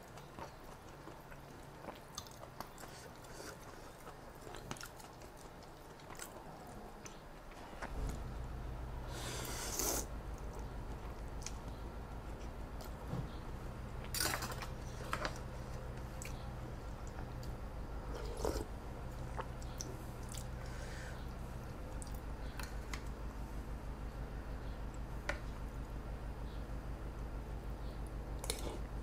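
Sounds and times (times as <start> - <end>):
chewing and mouth sounds: 0.0 - 8.1, 9.8 - 23.1, 28.4 - 29.0
low steady hum: 0.0 - 29.0
noodle slurp: 9.4 - 10.1.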